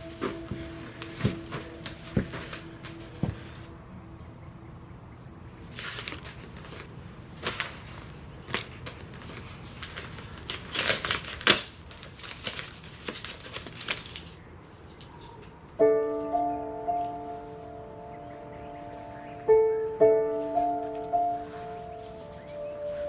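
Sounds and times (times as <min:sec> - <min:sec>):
paper rustling: 0:00.0 - 0:03.8, 0:05.6 - 0:17.8, 0:20.2 - 0:23.0
soft piano chord: 0:00.0 - 0:05.3, 0:15.8 - 0:23.0.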